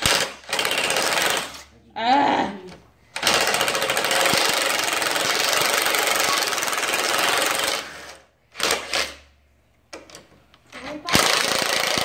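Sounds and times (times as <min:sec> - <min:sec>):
impact driver hammering: 0:11.1 - 0:12.0.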